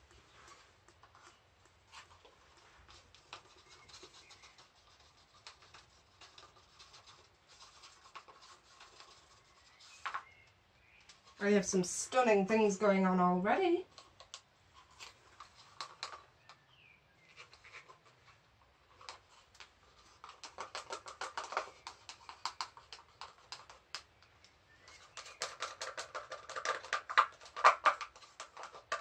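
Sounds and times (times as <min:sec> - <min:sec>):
hands clicking in wet paint: 0:19.0 - 0:29.0.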